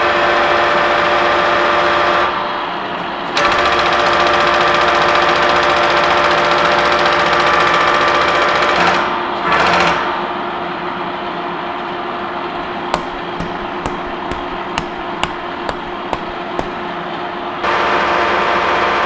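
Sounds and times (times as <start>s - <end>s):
light sharp metal taps: 12.6s - 16.8s.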